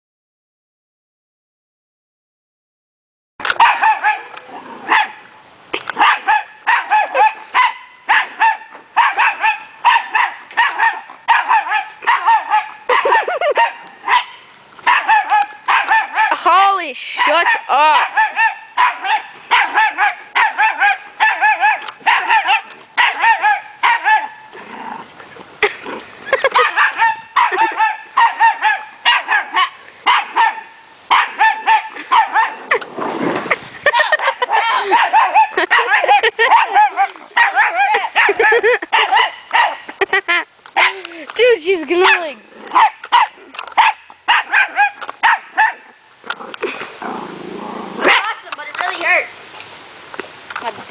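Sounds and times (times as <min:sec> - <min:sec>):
puppy barking high-pitched yaps: 0:03.5 - 0:05.2, 0:06.0 - 0:16.4, 0:17.1 - 0:24.4, 0:26.4 - 0:32.6, 0:34.1 - 0:39.9, 0:42.0 - 0:45.9
child sliding down plastic slide: 0:32.6 - 0:34.0.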